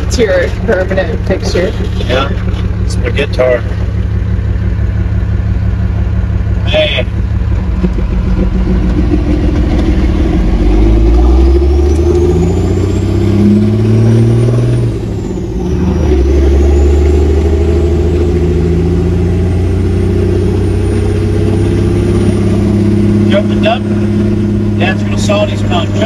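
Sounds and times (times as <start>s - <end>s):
truck engine accelerating: 0.0s - 26.0s.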